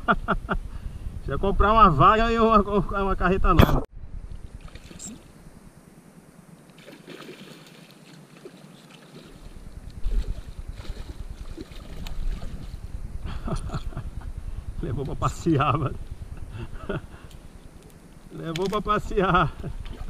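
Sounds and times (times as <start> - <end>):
wind rumbling on microphone: 0.0 - 6.4, 9.2 - 20.0
water lapping: 4.4 - 5.4, 6.7 - 12.9, 19.5 - 20.0.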